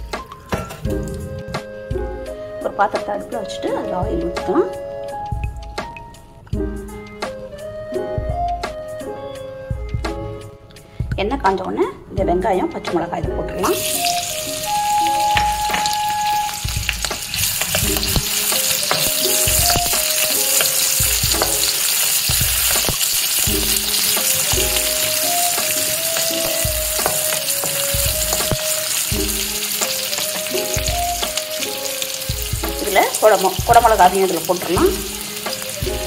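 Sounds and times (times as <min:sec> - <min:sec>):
onions sizzling in hot oil: 0:13.7 - 0:36.0
spatula stirring: 0:13.8 - 0:34.1.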